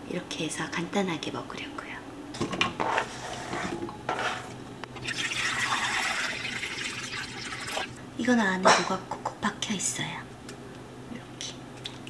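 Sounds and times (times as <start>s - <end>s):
water pouring into a pot: 5.0s - 8.0s.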